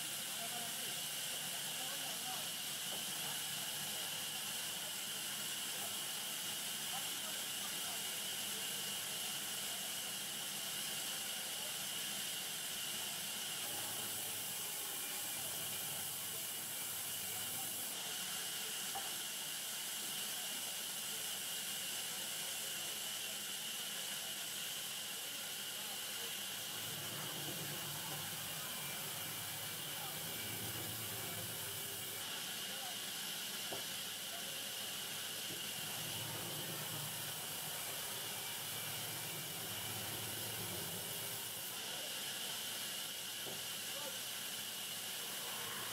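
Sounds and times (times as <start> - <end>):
band saw running: 35.4 - 41.6.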